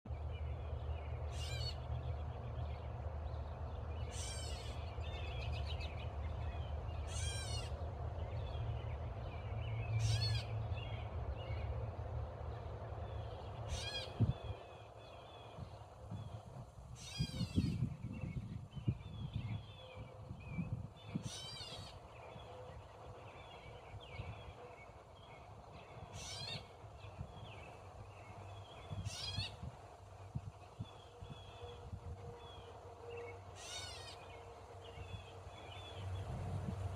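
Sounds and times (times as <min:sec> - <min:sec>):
bird harsh squawking calls: 0:01.3 - 0:01.8, 0:04.1 - 0:04.9, 0:07.1 - 0:07.8, 0:10.0 - 0:10.6, 0:13.7 - 0:14.2, 0:21.2 - 0:22.0, 0:26.1 - 0:26.7, 0:29.0 - 0:29.6, 0:33.6 - 0:34.3.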